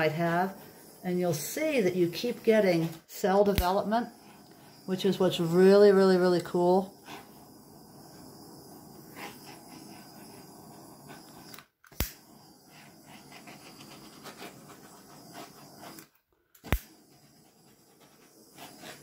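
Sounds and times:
handheld flame torch hissing: 0:00.0 - 0:19.0
sharp click: 0:11.5 - 0:12.2, 0:16.6 - 0:16.9.

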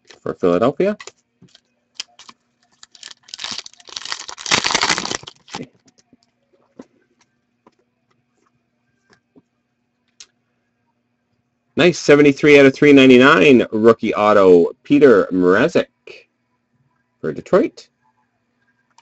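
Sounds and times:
foil wrapper tearing and crinkling: 0:01.5 - 0:05.7.

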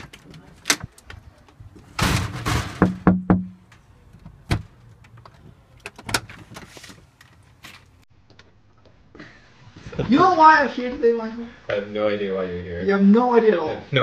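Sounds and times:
door opening: 0:01.8 - 0:07.9
knocks and clicks at glass door: 0:02.4 - 0:03.6.

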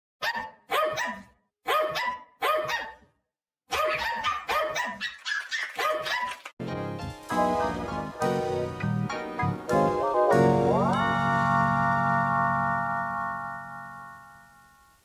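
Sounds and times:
dog barking: 0:00.2 - 0:03.1, 0:03.7 - 0:06.4
music: 0:06.6 - 0:15.0.

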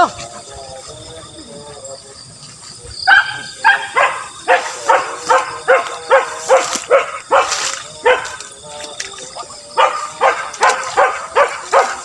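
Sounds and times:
dog barking rapidly: 0:03.1 - 0:08.4, 0:09.8 - 0:12.0.

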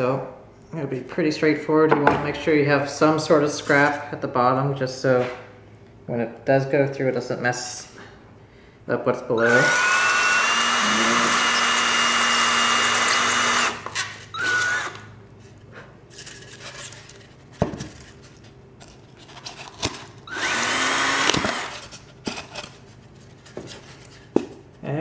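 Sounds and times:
power drill whining: 0:09.4 - 0:15.1, 0:20.3 - 0:21.8.

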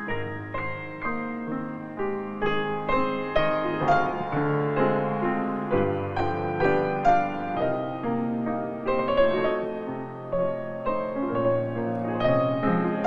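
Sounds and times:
piano music: 0:00.0 - 0:13.0.

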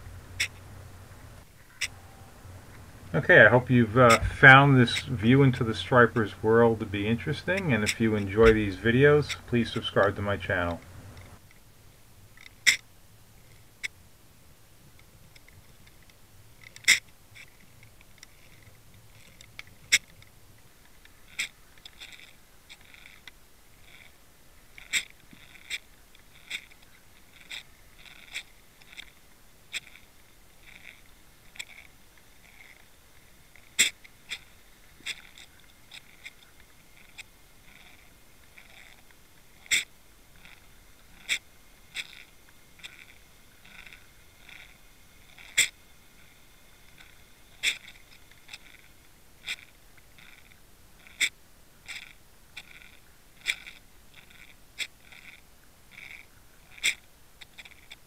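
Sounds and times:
soft ticks: 0:15.0 - 0:32.9, 0:33.6 - 0:46.3, 0:46.9 - 0:58.0
faint hiss: 0:23.3 - 0:57.8.

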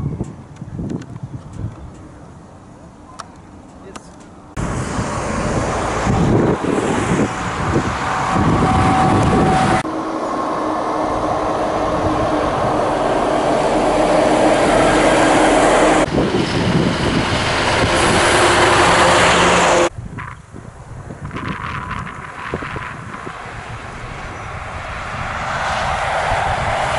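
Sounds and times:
diesel trucks driving past: 0:01.9 - 0:20.0, 0:21.8 - 0:26.9
quieter vehicle passing: 0:04.4 - 0:19.9, 0:21.9 - 0:26.9.

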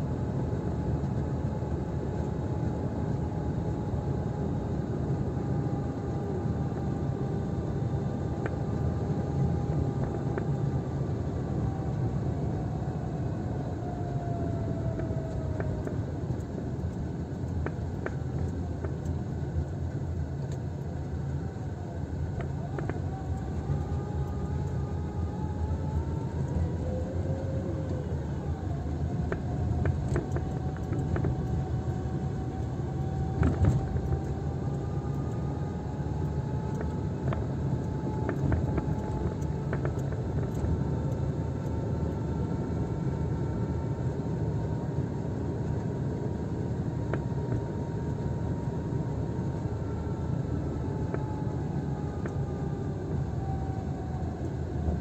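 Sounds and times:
faint whine: 0:00.0 - 0:55.0
engine and tyre drone: 0:20.4 - 0:55.0.

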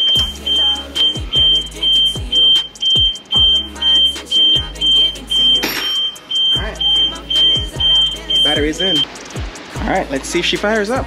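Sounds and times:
car alarm beeping: 0:00.0 - 0:09.2
background music with beat: 0:00.0 - 0:11.0.

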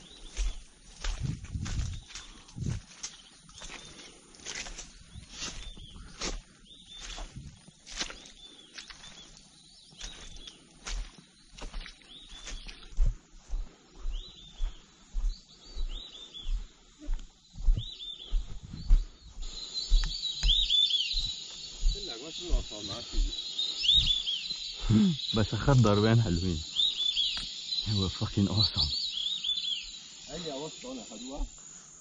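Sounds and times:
footsteps through wet grass: 0:00.0 - 0:28.1
high whistled bird calls: 0:17.6 - 0:31.5.

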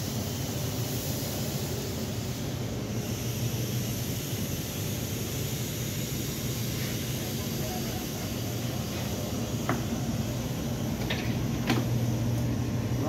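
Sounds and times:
train rolling with low hum: 0:00.0 - 0:13.0.

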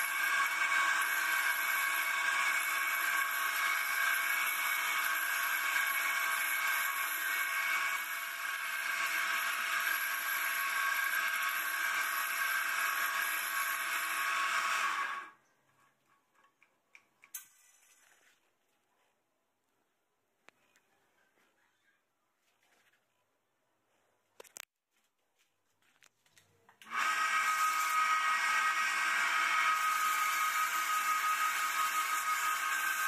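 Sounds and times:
lathe motor whine: 0:26.8 - 0:33.0.

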